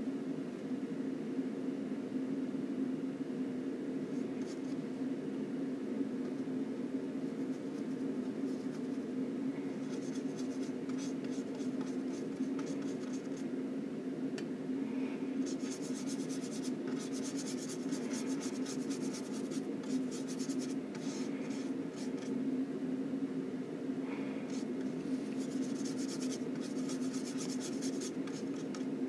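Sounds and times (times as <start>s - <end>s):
steady low hum: 0.0s - 29.0s
scratchy paintbrush strokes: 4.1s - 4.8s, 7.2s - 9.0s, 9.7s - 13.4s, 15.4s - 22.3s, 24.5s - 28.9s.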